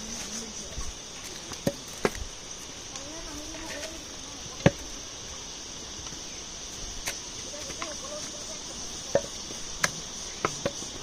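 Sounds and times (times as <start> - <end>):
insect chorus: 0.0 - 11.0
footfalls on stone steps: 0.2 - 2.3, 7.0 - 11.0.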